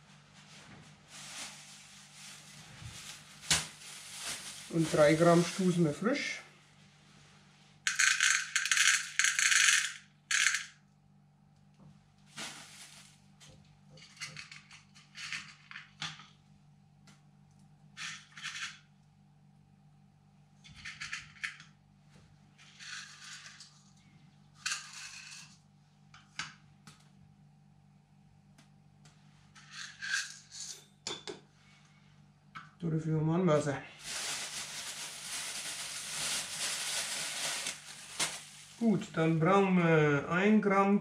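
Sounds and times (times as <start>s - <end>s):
peppercorns rustling in plastic bag: 1.0s - 6.4s, 12.3s - 13.3s, 34.0s - 38.9s
peppercorns clattering into cup: 7.9s - 10.8s.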